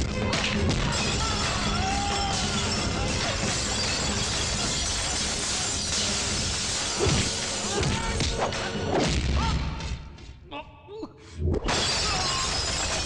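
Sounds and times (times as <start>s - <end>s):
glass bottles shattering: 2.1s - 7.9s, 11.6s - 13.0s.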